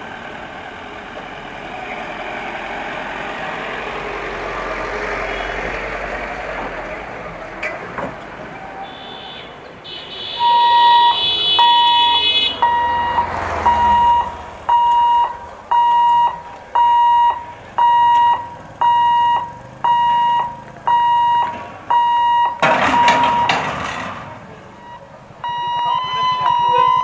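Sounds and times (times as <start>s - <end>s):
level-crossing alarm beeping: 10.3s - 23.7s, 24.7s - 27.0s
higher alarm tone: 10.4s - 23.5s, 24.8s - 27.0s.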